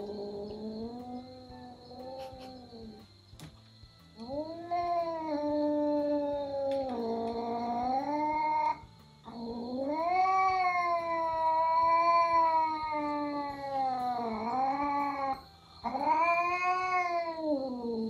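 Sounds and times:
cat yowling: 4.2s - 18.0s.

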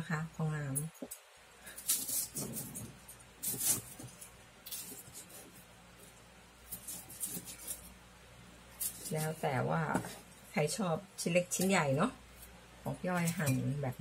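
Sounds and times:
knife crunching through fried food: 6.6s - 8.0s.

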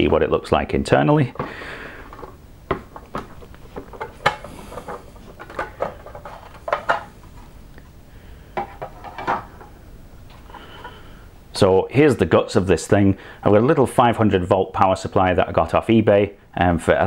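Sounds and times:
plastic parts clicking and knocking: 1.4s - 7.4s.

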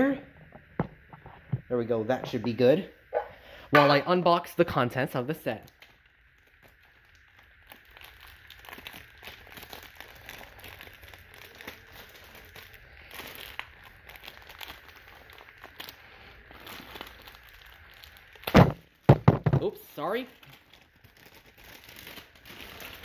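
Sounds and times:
plastic bag crinkling: 5.8s - 23.0s.

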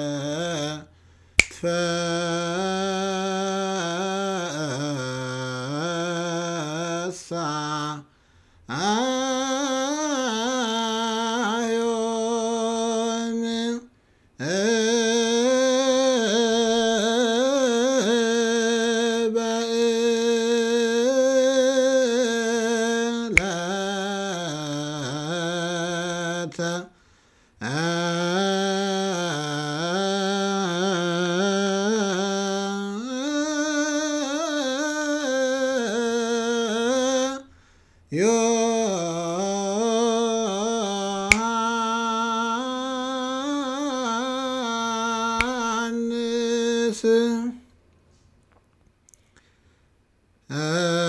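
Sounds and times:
man chanting a hymn: 0.0s - 0.9s, 1.6s - 8.1s, 38.1s - 47.6s.

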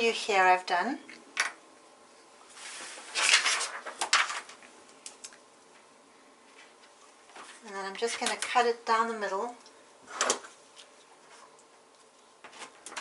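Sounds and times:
paper rustling and swishing: 2.5s - 4.5s.

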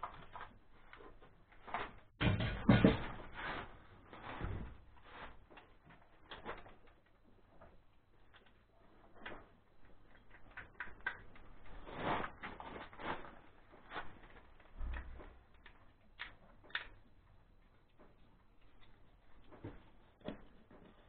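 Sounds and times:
small parts clicking and tapping: 5.6s - 11.8s, 14.4s - 21.0s.

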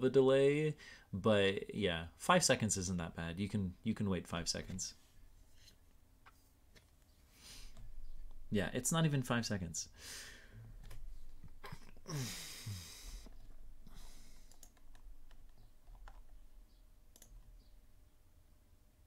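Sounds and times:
breathy sigh: 12.0s - 14.4s
computer mouse clicks: 14.3s - 16.3s, 17.1s - 17.5s.

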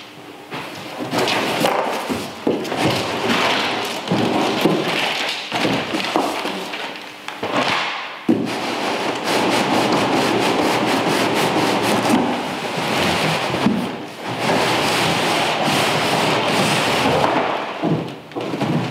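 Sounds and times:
cardboard rustling and scraping: 0.6s - 18.9s
knocks and thuds: 17.0s - 18.9s.

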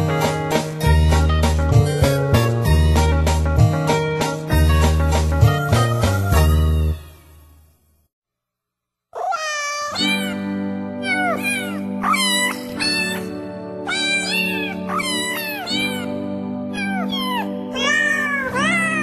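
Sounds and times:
music: 0.0s - 8.1s, 9.9s - 19.0s
novelty song of cat meows: 9.2s - 19.0s.

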